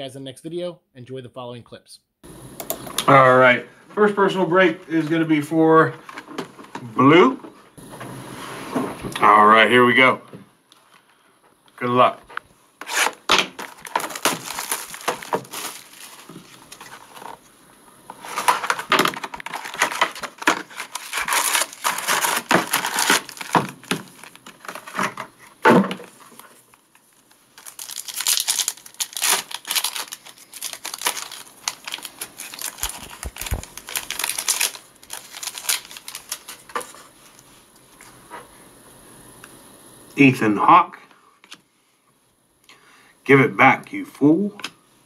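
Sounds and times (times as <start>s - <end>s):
plastic and foil packs crinkling: 12.8s - 17.5s, 18.1s - 38.2s.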